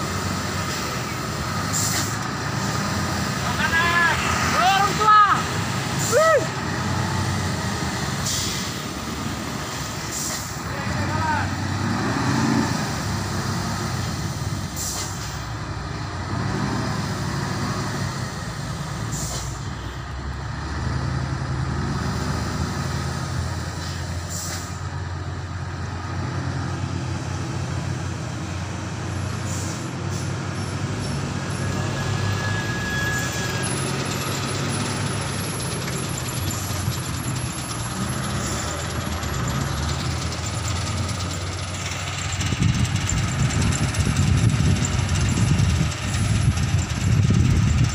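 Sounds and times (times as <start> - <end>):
truck diesel engine droning: 0.0 - 47.9
air-brake hisses: 1.6 - 2.3, 8.2 - 8.9, 9.6 - 10.6, 14.7 - 15.5, 19.0 - 19.7, 23.8 - 24.8.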